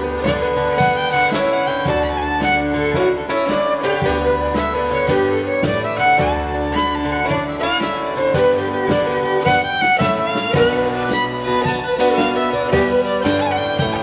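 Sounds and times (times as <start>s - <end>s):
drums: 0.0s - 14.0s
electric keyboard: 0.0s - 14.0s
fiddle: 0.0s - 14.0s.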